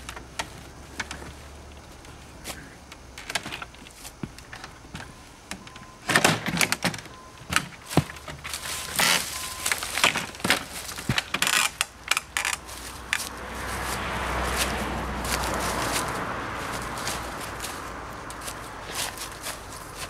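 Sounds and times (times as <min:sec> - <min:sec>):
rustles in dry leaves: 0:07.8 - 0:20.0.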